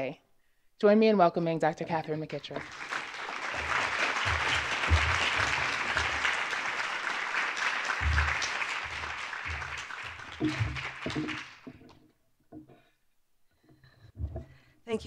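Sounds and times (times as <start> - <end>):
audience applauding: 2.4 - 11.8.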